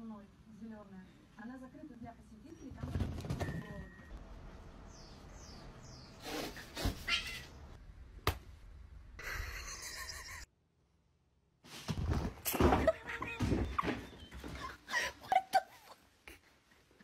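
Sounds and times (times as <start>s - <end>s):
cats meowing: 7.0s - 7.5s.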